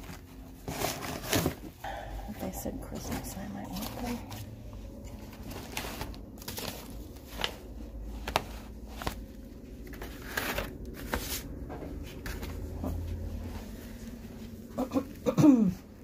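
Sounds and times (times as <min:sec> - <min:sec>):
newspaper clippings rustling: 0:05.1 - 0:12.7.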